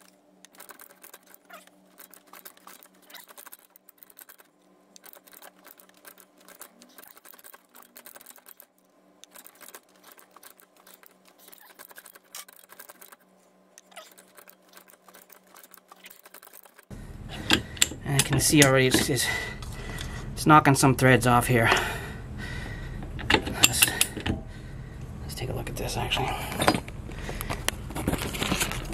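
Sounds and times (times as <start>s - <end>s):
ratcheting pipe threader clicking: 0.0s - 13.2s, 13.8s - 20.2s, 23.0s - 24.5s
steady low hum: 0.0s - 15.9s, 16.9s - 28.9s.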